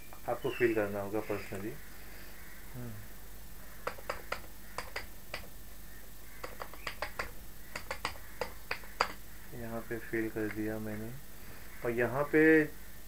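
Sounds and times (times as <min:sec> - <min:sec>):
keyboard key clicks: 0:03.8 - 0:05.5, 0:06.4 - 0:09.2.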